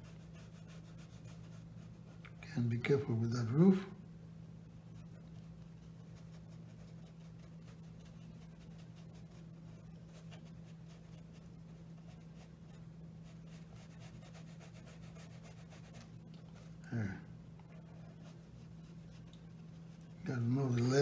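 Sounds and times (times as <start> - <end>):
brush strokes on paper: 0.0 - 2.8, 4.9 - 21.0.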